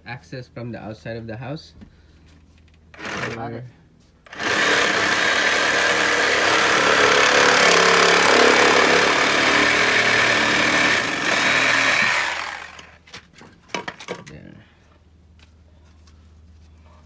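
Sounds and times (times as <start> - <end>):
reciprocating saw cutting plastic pipe: 3.0 - 3.4, 4.3 - 13.0.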